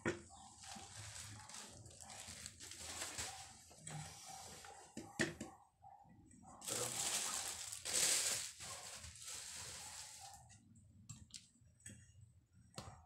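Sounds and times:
plastic wrapping crinkling: 0.4 - 4.0, 6.6 - 10.4.

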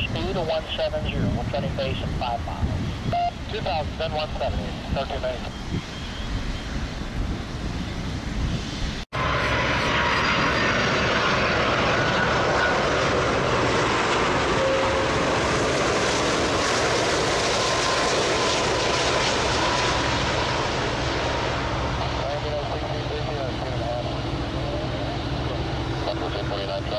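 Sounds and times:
jet engines rushing: 0.0 - 26.9
taxiing jet engine: 0.0 - 26.9.

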